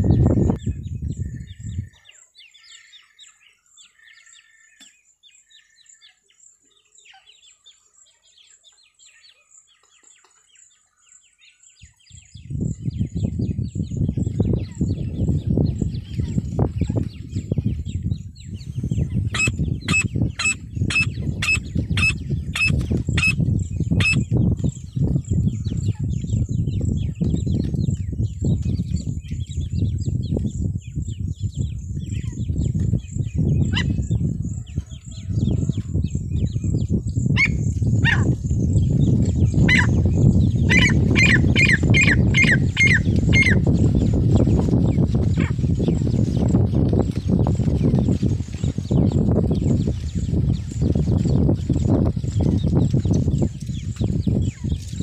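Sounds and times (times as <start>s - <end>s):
francolin calling: 19.4s - 23.4s.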